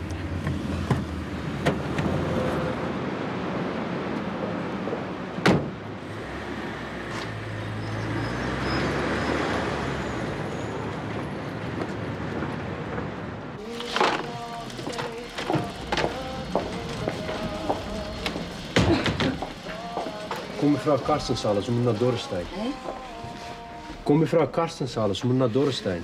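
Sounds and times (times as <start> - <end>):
street traffic: 0.0 - 26.0
car door shutting hard: 5.4 - 5.8.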